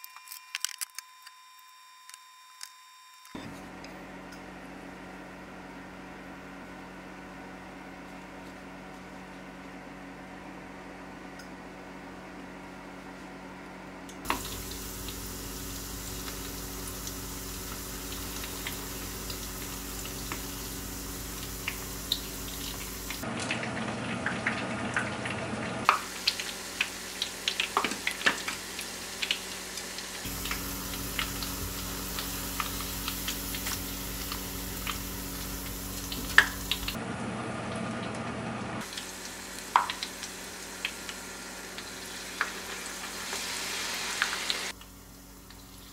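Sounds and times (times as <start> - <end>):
deep-frying sizzle with pops: 14.2 - 37.0, 38.8 - 45.9.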